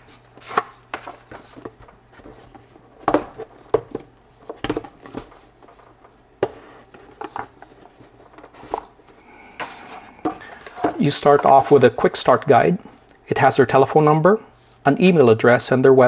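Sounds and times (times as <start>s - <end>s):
cardboard box rustling and scraping: 9.7s - 12.0s.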